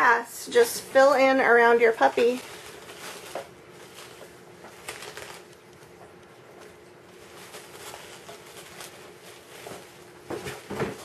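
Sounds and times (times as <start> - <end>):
dry wood shavings rustling: 1.0 - 5.6, 7.0 - 10.6.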